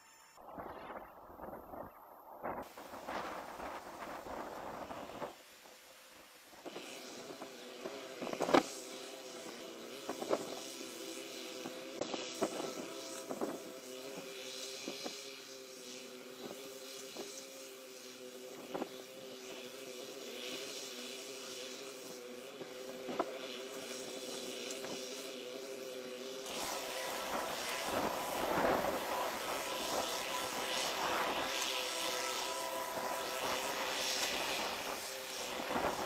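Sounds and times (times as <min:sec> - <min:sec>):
train engine hum: 0:26.4 - 0:36.0.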